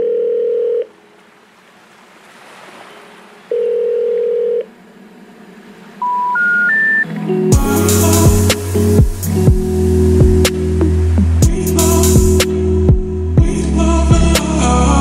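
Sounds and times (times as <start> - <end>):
telephone ringing tone beeps: 0.0 - 0.9, 3.5 - 4.7, 6.0 - 7.1
rising intercept signal beep: 6.0 - 8.4.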